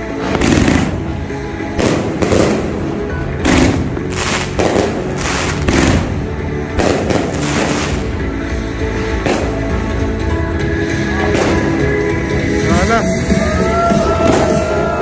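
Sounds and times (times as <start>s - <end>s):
fireworks bangs: 0.0s - 8.2s, 13.9s - 15.0s
background music: 0.0s - 15.0s.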